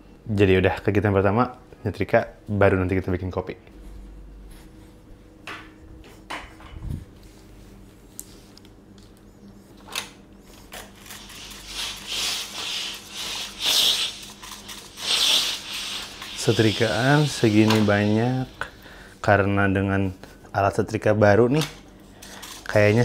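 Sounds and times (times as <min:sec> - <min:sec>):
steam iron hissing: 0:11.2 - 0:18.8, 0:22.7 - 0:23.0.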